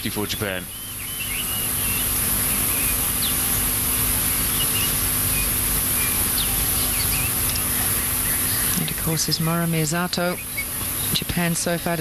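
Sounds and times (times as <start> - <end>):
steady high-pitched hiss: 0.0 - 12.0
bird chirps and whistles: 0.7 - 3.6, 4.2 - 8.8.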